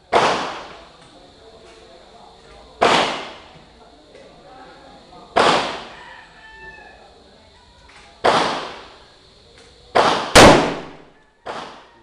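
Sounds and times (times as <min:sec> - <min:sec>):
rifle gunshots: 0:00.1 - 0:00.7, 0:02.8 - 0:03.4, 0:05.4 - 0:05.9, 0:08.2 - 0:08.8, 0:10.0 - 0:11.8.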